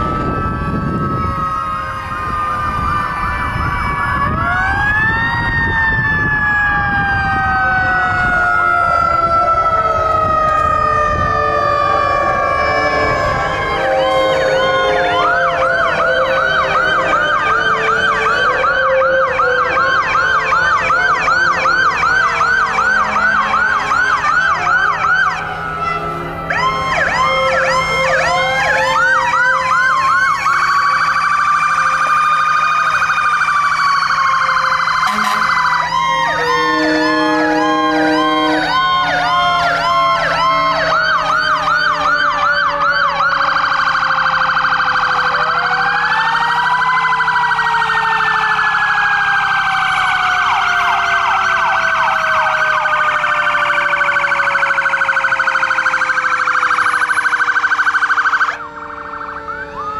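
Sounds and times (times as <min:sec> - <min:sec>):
electronic sirens yelping: 0:00.0 - 0:59.9
wailing siren: 0:00.0 - 0:59.9
low steady horn: 0:08.8 - 0:20.8, 0:21.4 - 0:29.7, 0:34.7 - 0:39.9.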